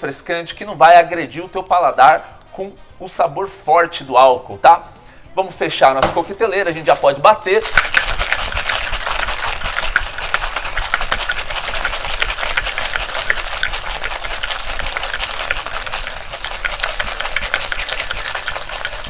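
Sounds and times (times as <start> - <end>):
cocktail shaker rattling: 6.7 - 19.0.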